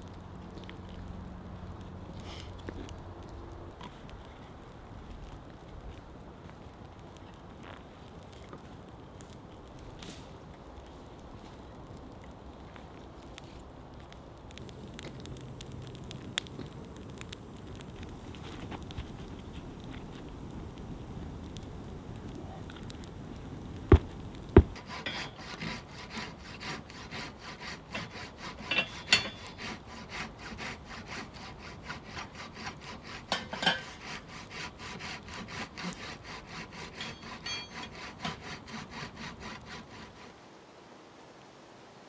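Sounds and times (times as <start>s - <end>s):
sharp knocks: 23.9s - 24.8s
hand saw cutting wood: 24.6s - 40.3s.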